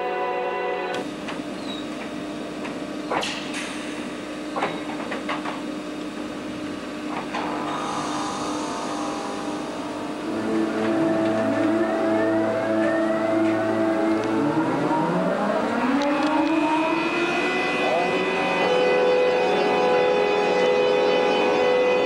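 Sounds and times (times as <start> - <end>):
electric locomotive hum: 0.0 - 22.0
traction drive whine: 0.9 - 22.0.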